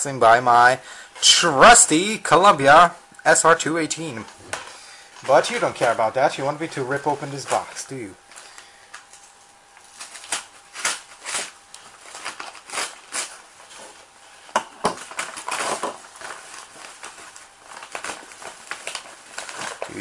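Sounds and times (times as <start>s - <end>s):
plastic and bubble wrap crinkling: 0.2s - 20.0s
paper mailer tearing: 9.8s - 14.1s, 15.0s - 20.0s.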